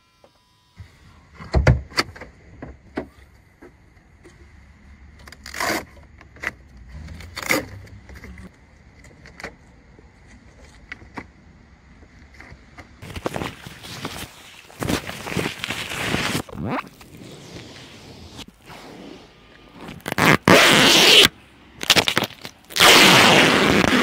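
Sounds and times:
fabric cover scraping rustles: 13.0 - 21.3.

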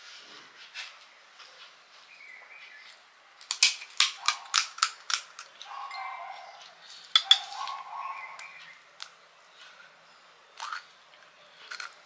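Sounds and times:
puri shells crunching and cracking: 3.4 - 5.7, 10.6 - 10.9.

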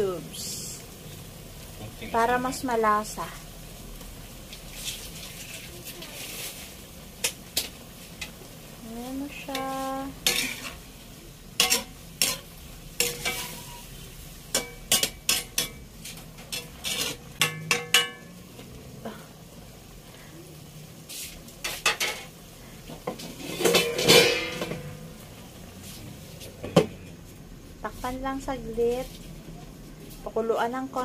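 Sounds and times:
gentle sizzle: 0.0 - 31.0
metal spatula scraping wok: 9.2 - 18.7, 21.0 - 26.6
metal clatter: 23.2 - 25.0.

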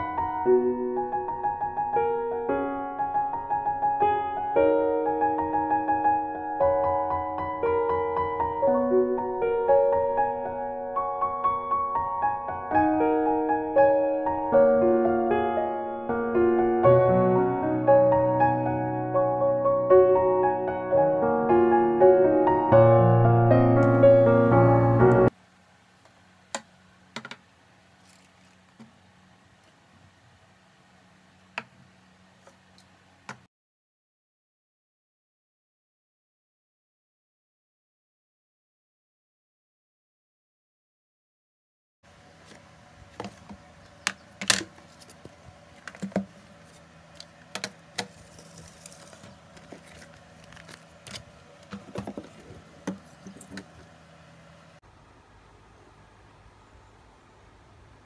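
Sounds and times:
plastic items clicking on desk: 45.8 - 46.4, 47.2 - 53.7
objects knocking on desktop: 51.7 - 53.7.

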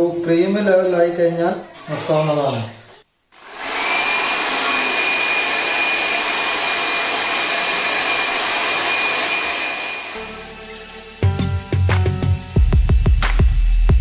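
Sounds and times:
electric hand mixer whirring: 3.4 - 12.9.

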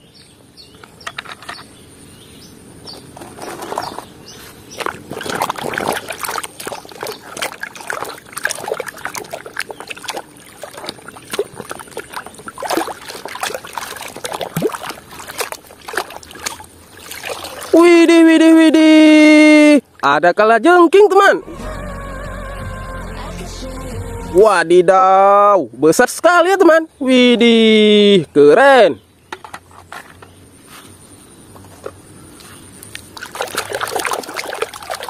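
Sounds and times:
water sloshing and splashing: 3.2 - 17.9, 32.8 - 35.0.

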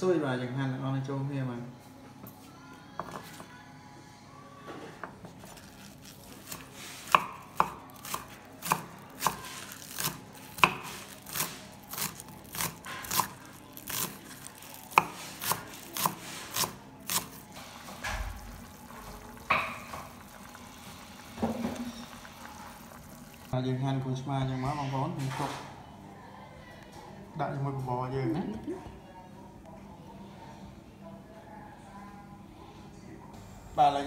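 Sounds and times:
knife chopping on wooden board: 6.5 - 14.1, 14.9 - 17.4.

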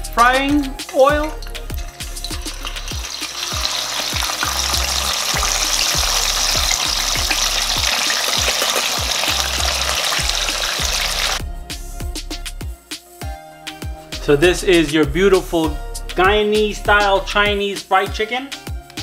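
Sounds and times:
chicken deep-frying in oil: 1.0 - 11.4.

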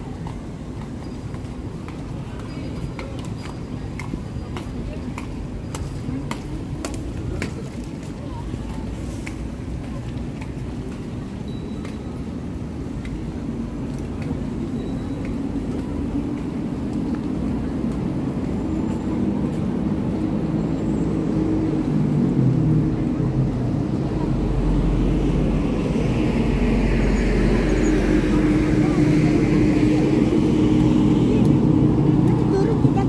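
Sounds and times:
crowd voices: 14.7 - 33.0.

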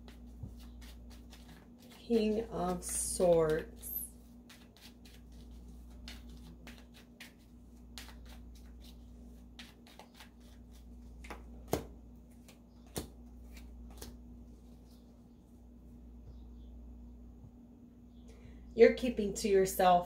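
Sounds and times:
cards being shuffled: 0.0 - 14.2.

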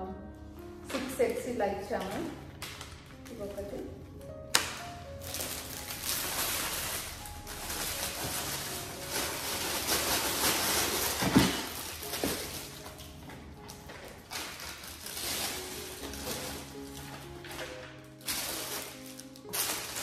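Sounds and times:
plastic bag crinkling: 4.5 - 20.0.

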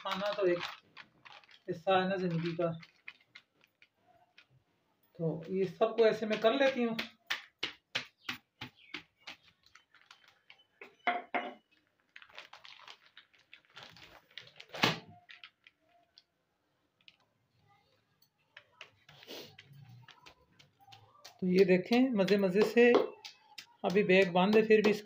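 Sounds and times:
plastic bag handling noises: 0.0 - 4.7, 8.8 - 11.0, 11.6 - 16.3.

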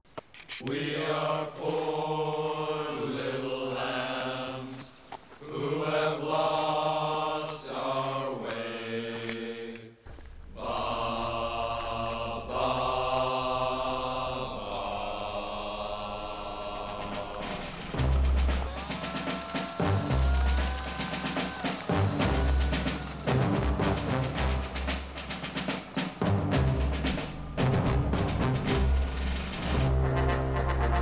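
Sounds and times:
slow chanted voices: 0.5 - 27.6
low steady drone: 11.4 - 25.3.

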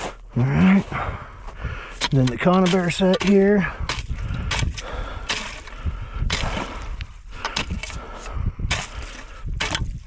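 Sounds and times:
ice and snow crunching: 0.0 - 7.2.

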